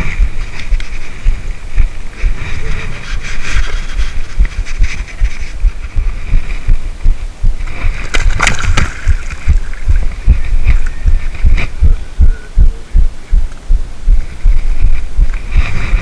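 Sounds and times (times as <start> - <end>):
wind thumping on microphone: 0.0 - 16.0
fish splashing into water: 8.0 - 9.4.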